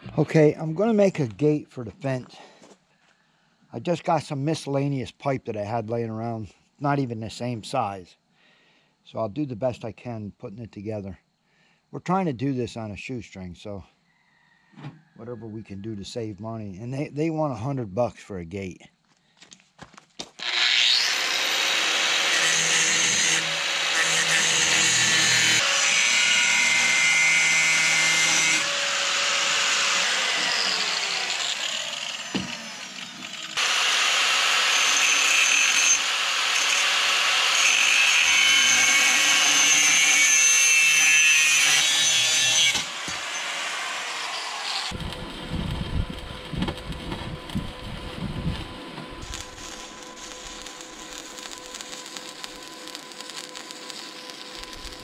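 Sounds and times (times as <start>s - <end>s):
power tool cutting metal pipe: 20.4s - 45.8s, 46.8s - 55.0s.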